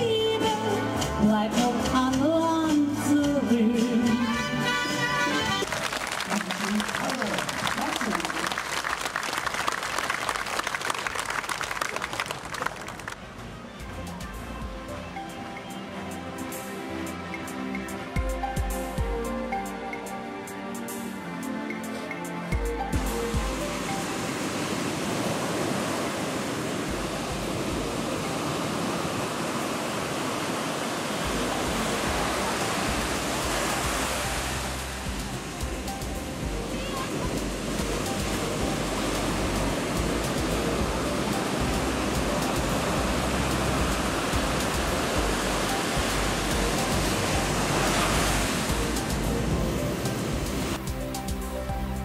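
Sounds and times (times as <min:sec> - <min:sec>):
surf breaking on a sandy beach: 0:23.4 - 0:50.8.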